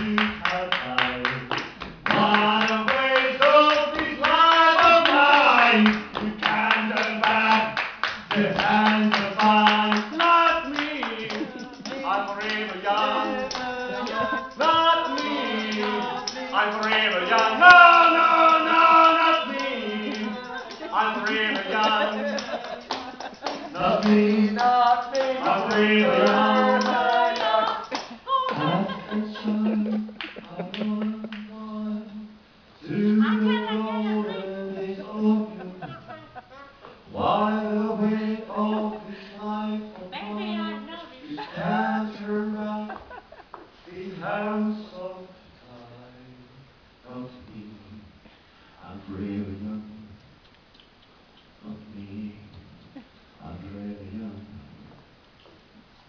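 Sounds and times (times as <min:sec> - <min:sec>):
rhythmic hand clapping: 0:00.0 - 0:31.6
voices singing: 0:00.0 - 0:47.7.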